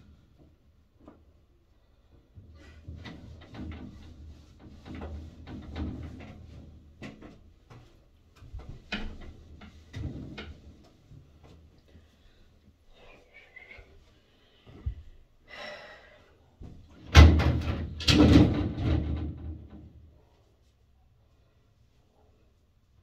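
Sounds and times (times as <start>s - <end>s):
sliding panels knocking and rattling: 2.6s - 11.3s, 16.9s - 20.1s.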